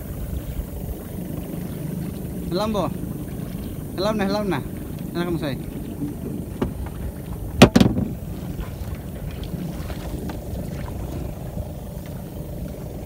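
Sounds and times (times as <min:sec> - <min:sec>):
sharp knocks: 0:07.6 - 0:08.2.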